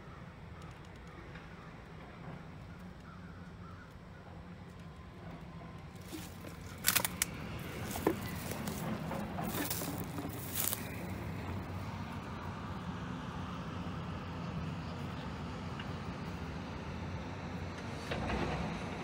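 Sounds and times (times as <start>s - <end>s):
distant crow cawing: 3.0s - 4.1s
footsteps on dry brush: 6.0s - 11.5s.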